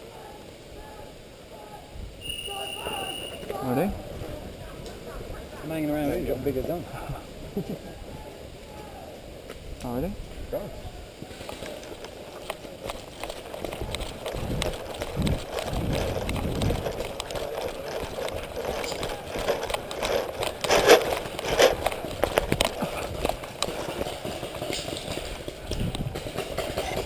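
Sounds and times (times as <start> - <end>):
running footsteps on dirt path: 2.2 - 27.0
rustle and rattle of gear: 9.5 - 27.0.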